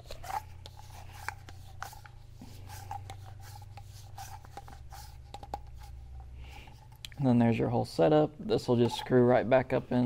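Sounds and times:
soft rubbing: 0:00.0 - 0:07.0
faint steady hum: 0:00.0 - 0:10.0.

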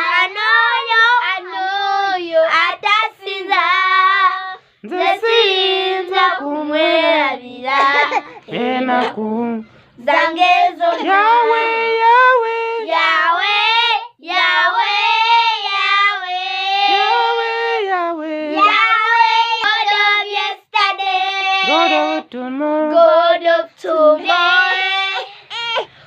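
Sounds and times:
girls singing: 0:00.0 - 0:17.9, 0:18.5 - 0:25.9
short breaths: 0:09.6 - 0:10.0, 0:25.2 - 0:26.0.

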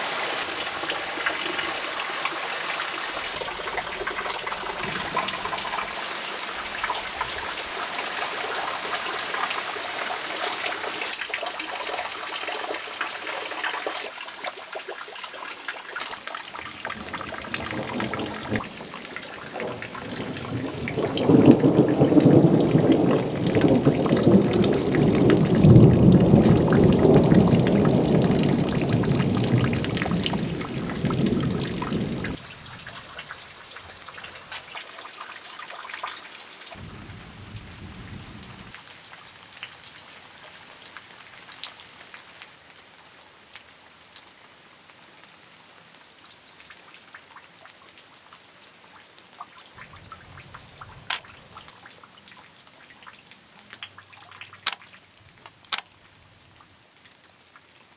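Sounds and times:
rain falling: 0:00.0 - 0:57.9
water dripping: 0:00.4 - 0:39.8, 0:49.4 - 0:56.1
thunder rumbling: 0:03.1 - 0:07.8, 0:16.6 - 0:32.4, 0:36.8 - 0:38.8.

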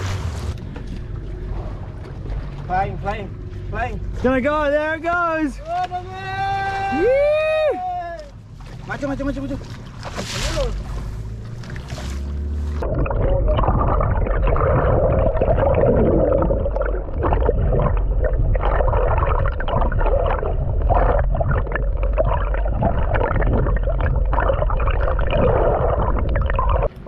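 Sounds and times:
low rumble: 0:00.0 - 0:27.0
water sloshing around boat: 0:00.0 - 0:27.0.

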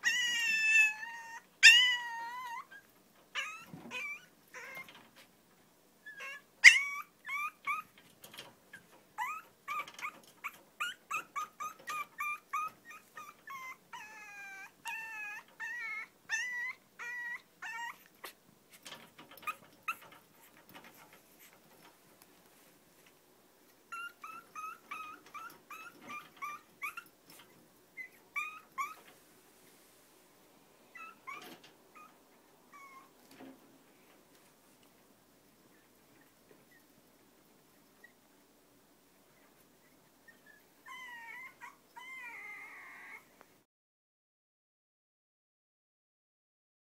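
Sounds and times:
puppy whining and yipping: 0:00.0 - 0:05.2, 0:06.0 - 0:08.0, 0:08.7 - 0:21.6, 0:23.9 - 0:29.1, 0:30.9 - 0:33.3, 0:39.3 - 0:43.4.

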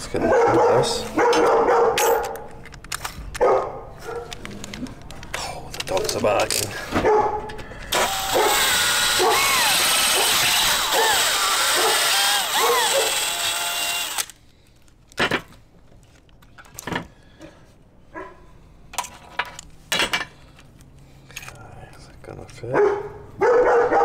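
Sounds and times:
dogs barking: 0:00.1 - 0:02.3, 0:03.4 - 0:04.4, 0:07.0 - 0:07.5, 0:10.1 - 0:13.2, 0:22.7 - 0:24.0
drill boring through metal: 0:07.9 - 0:14.3.

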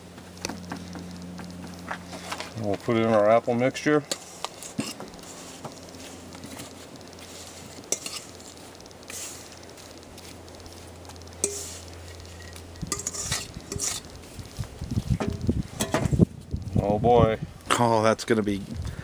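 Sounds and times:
metal utensil scraping metal bowl: 0:04.1 - 0:05.6, 0:07.4 - 0:08.5, 0:11.4 - 0:14.1.

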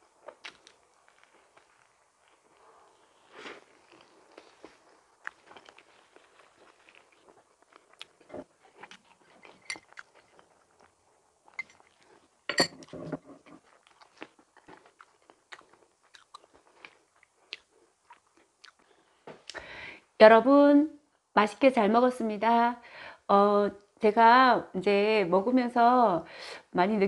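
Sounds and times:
person chewing soft food: 0:00.0 - 0:19.6.

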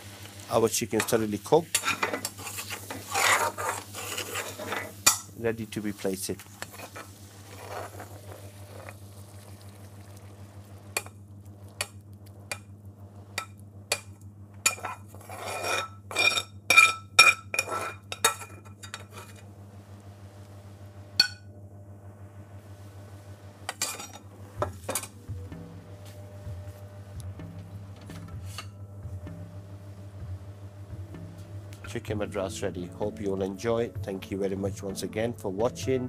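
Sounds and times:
steady low hum: 0:00.0 - 0:36.0
metal ladle scraping a pan: 0:01.0 - 0:05.3, 0:06.5 - 0:09.0, 0:14.7 - 0:19.4, 0:23.7 - 0:24.2, 0:28.2 - 0:28.8.

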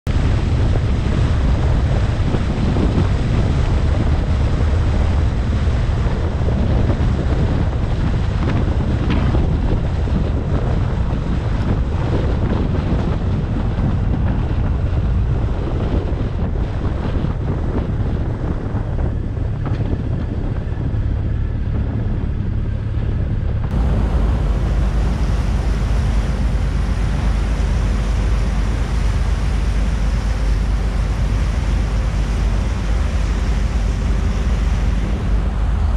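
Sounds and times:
low rumble: 0:00.0 - 0:35.9
wind buffeting microphone: 0:00.0 - 0:35.9.

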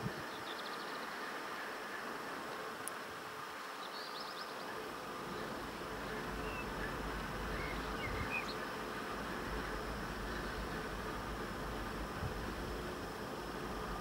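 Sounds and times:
diesel locomotive engine drone: 0:00.0 - 0:14.0
bird chirps: 0:06.3 - 0:08.7.

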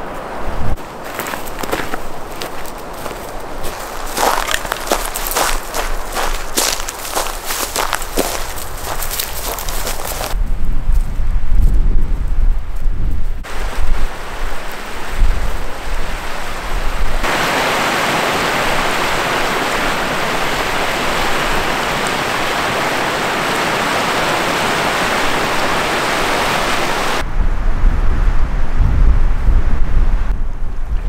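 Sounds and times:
wind buffeting microphone: 0:00.0 - 0:31.0
creek rapids rushing: 0:00.8 - 0:10.4, 0:13.5 - 0:27.2.

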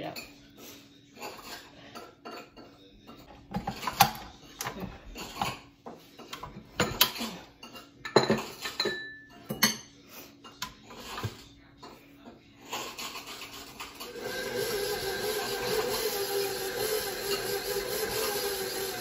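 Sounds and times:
knife clinking against steel bowl: 0:06.3 - 0:10.8
mixer beater knocking and clicking: 0:14.1 - 0:19.0.

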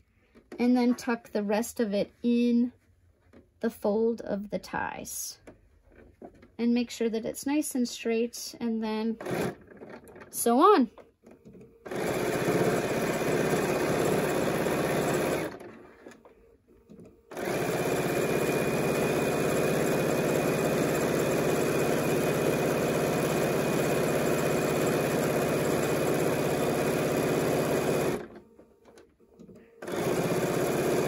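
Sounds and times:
sewing machine stitching: 0:09.2 - 0:10.5, 0:11.2 - 0:16.3, 0:16.9 - 0:31.0.

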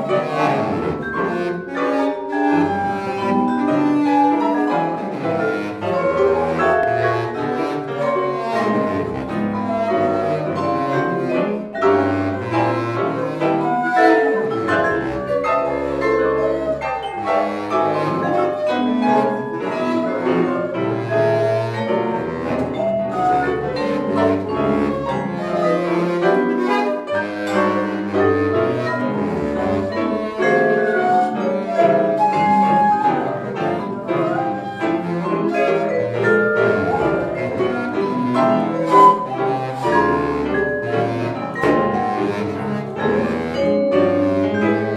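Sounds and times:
chamber ensemble playing: 0:00.0 - 0:44.9.

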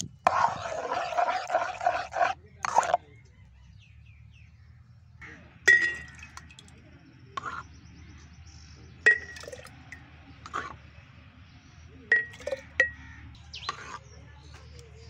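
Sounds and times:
metal ladle clinking on glass jar: 0:05.7 - 0:06.7, 0:09.1 - 0:09.9, 0:12.1 - 0:13.0.

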